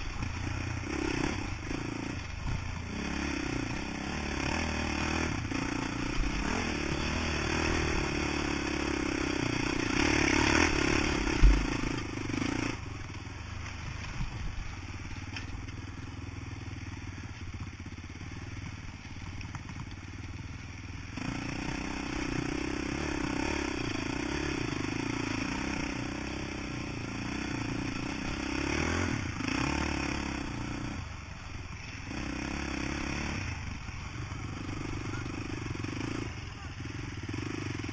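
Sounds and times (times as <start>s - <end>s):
quad bike engine running: 0.0s - 37.9s.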